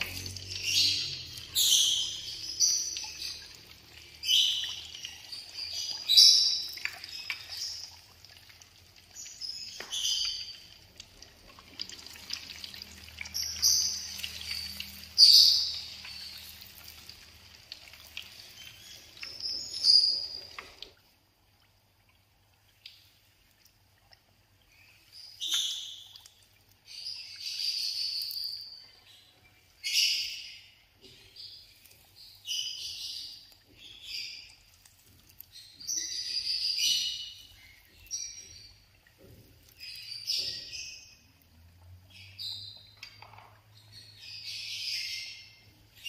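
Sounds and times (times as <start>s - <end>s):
deep-frying in hot oil: 0.0s - 21.5s.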